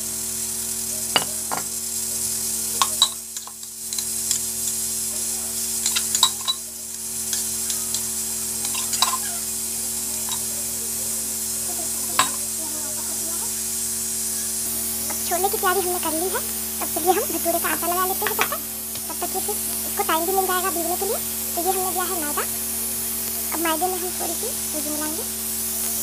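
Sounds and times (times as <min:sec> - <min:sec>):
steady hiss: 0:00.0 - 0:26.0
spoon scraping steel tumbler: 0:02.8 - 0:04.9, 0:05.5 - 0:09.4, 0:10.2 - 0:10.5, 0:15.2 - 0:22.4.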